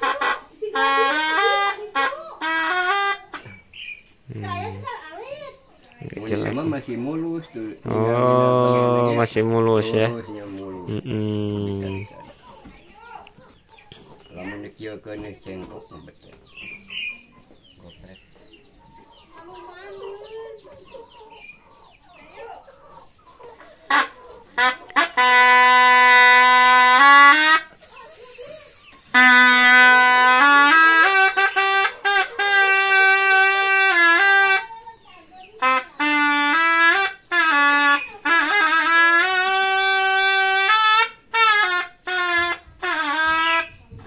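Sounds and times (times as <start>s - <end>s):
chickens clucking: 0.0s - 44.0s
double-reed shawm melody: 23.9s - 34.8s, 35.6s - 43.8s.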